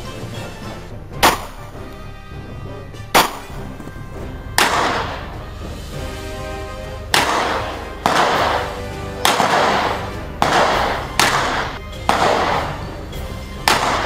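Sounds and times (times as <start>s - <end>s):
pistol shots echoing: 1.2s - 1.8s, 3.2s - 3.7s, 4.6s - 5.4s, 7.1s - 14.0s.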